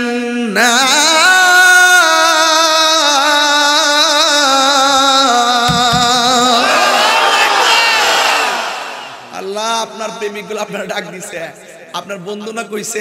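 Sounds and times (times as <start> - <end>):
man chanting into microphone: 0.0 - 6.6.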